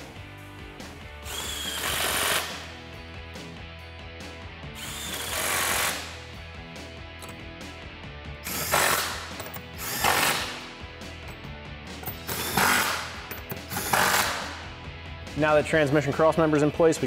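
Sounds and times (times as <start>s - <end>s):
cordless ratchet spinning bolts: 11.2s - 14.5s.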